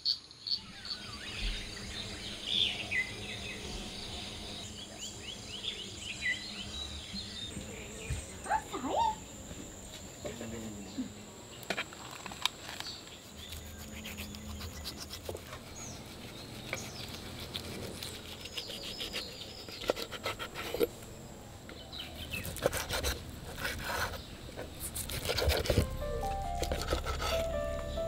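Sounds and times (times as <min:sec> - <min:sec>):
knife cutting on wooden board: 0:13.4 - 0:20.9, 0:22.3 - 0:27.5
music notes: 0:25.8 - 0:28.0.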